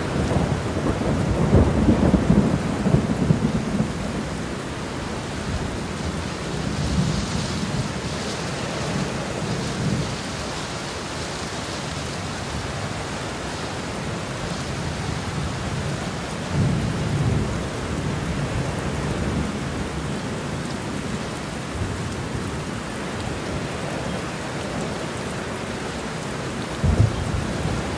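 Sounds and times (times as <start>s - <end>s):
steady rain: 0.0s - 27.9s
thunder rolling: 26.8s - 27.9s.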